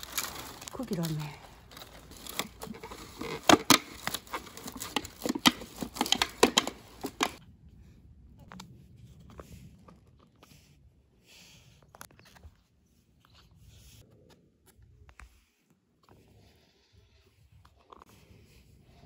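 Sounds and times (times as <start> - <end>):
plastic tray crackling and popping: 0.0 - 7.4.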